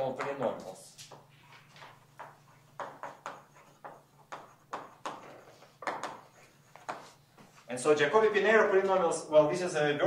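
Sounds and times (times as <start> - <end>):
chalk tapping and scratching: 1.0 - 7.7.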